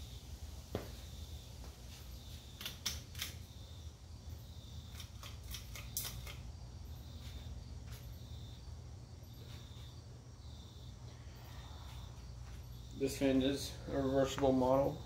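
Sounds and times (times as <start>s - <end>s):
ceiling fan motor humming: 0.0s - 15.0s
sharp clicks: 2.6s - 3.4s.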